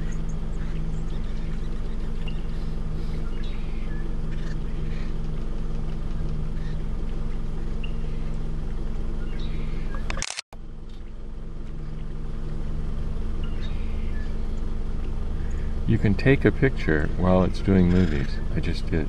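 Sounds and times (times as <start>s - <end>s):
faint bird chirps: 0.0s - 5.2s, 6.1s - 6.9s, 7.6s - 8.4s, 13.2s - 14.7s
low engine-like hum: 0.0s - 19.0s
camera shutter click: 10.1s - 10.4s.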